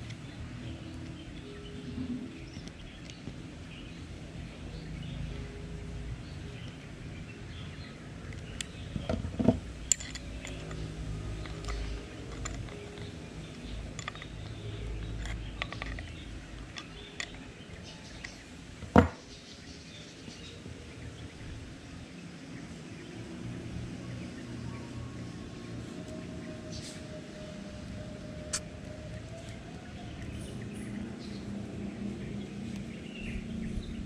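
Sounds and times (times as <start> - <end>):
sharp knocks: 18.9 - 19.2.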